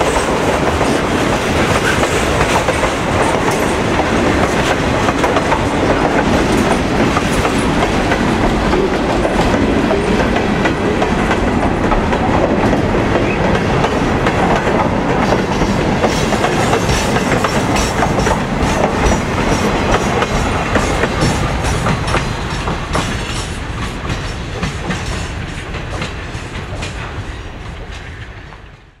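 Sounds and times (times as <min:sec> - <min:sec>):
freight train rolling by: 0:00.0 - 0:29.0.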